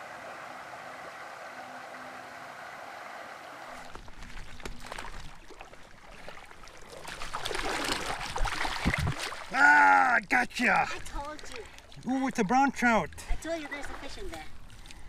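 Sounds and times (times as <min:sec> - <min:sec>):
fish splashing at surface: 0:03.8 - 0:09.5.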